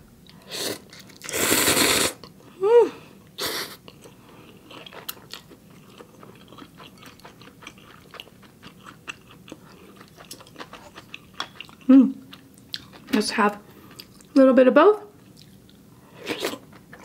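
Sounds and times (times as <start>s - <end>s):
person slurping noodles: 0.5s - 2.2s
person humming mm: 1.7s - 3.8s
wet mouth chewing: 3.9s - 13.2s, 13.8s - 14.4s.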